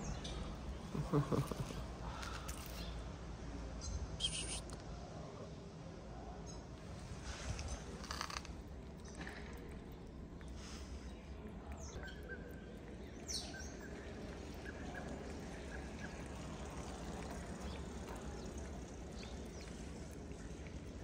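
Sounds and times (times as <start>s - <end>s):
low background rumble: 5.6s - 21.0s
cat chewing wet food: 6.8s - 21.0s.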